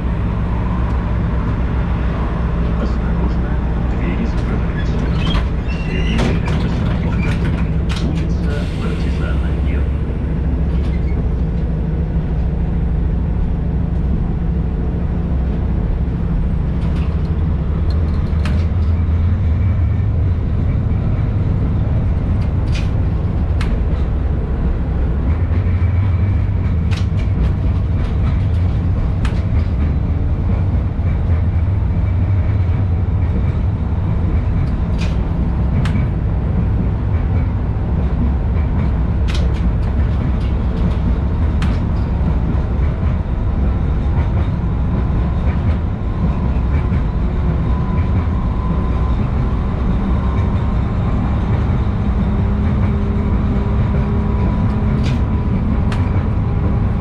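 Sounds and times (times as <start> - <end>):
tram wheels rumbling on rails: 0.0 - 57.0
sharp clicks and knocks: 16.8 - 19.0, 26.6 - 30.0, 34.3 - 47.1.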